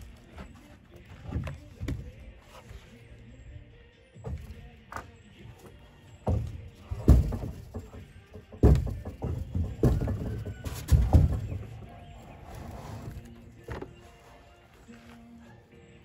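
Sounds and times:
wooden board thumping: 6.2s - 12.0s
board scraping on foam wall: 8.6s - 14.3s.

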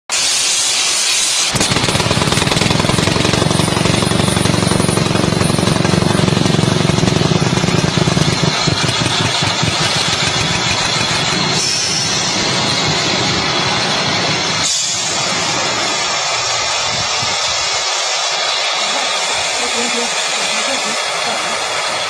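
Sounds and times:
hiss: 0.1s - 2.2s, 7.8s - 22.0s
rock drill rattling: 1.5s - 13.2s.

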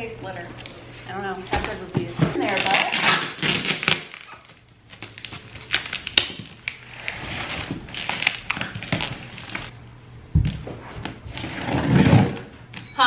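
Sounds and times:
tape being crumpled by hand: 2.4s - 9.7s
tape peeling off cardboard: 2.4s - 9.7s.

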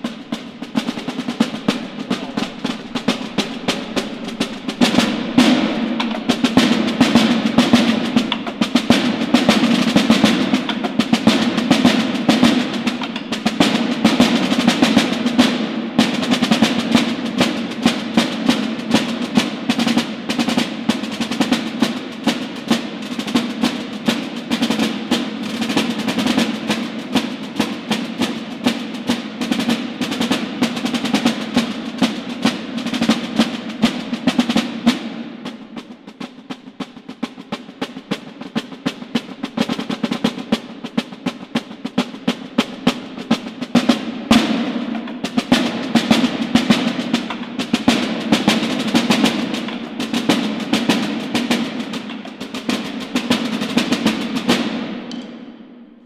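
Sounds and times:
side drums playing a march: 0.0s - 56.0s.

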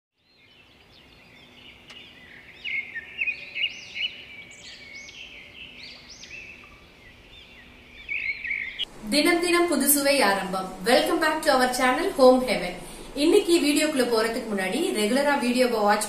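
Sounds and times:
small birds chirping: 0.2s - 8.9s
faint steady hum: 0.3s - 16.0s.

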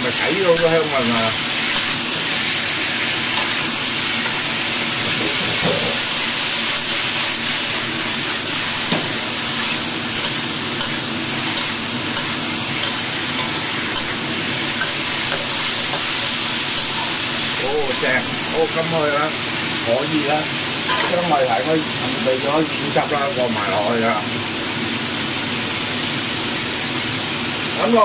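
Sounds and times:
food sizzling in a wok: 0.0s - 28.0s
spatula scraping a pan: 0.5s - 18.5s.

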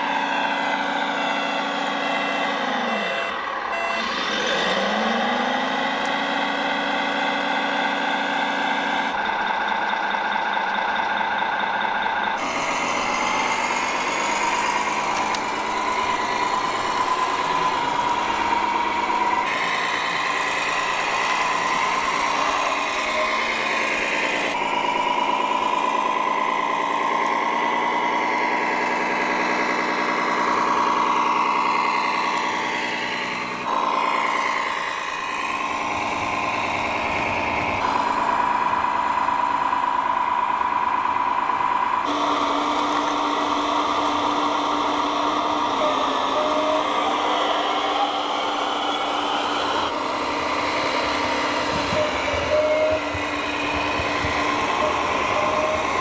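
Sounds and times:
toy truck motor whining: 0.0s - 56.0s.

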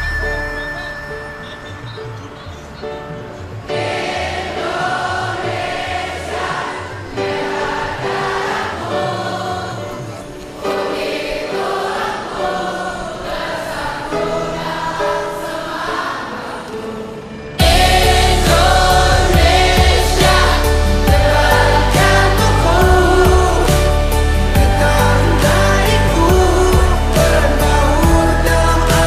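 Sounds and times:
choir singing a slow song: 3.4s - 29.0s
low bass line: 17.6s - 29.0s.

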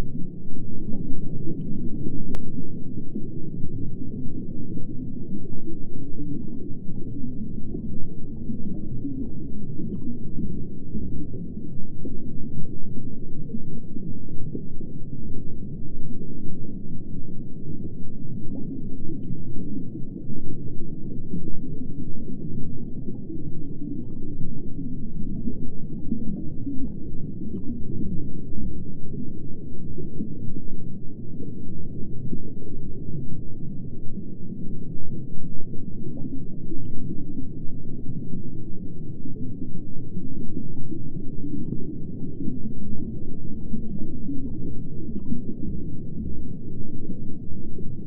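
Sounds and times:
muffled underwater rumbling: 0.0s - 48.0s
faint bubble ticks: 0.8s - 12.7s, 17.8s - 32.3s.

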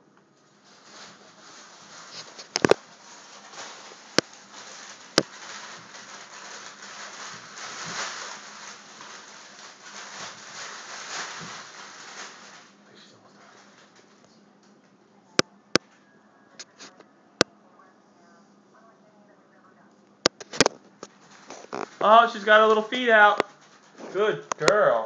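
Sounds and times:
dog scratching inside a bag: 0.7s - 12.7s, 21.0s - 24.5s.

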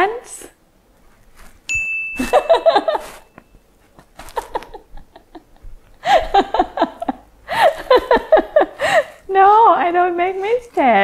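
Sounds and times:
steady high tone: 1.7s - 3.6s
woman laughing: 2.2s - 3.2s, 4.2s - 9.2s.

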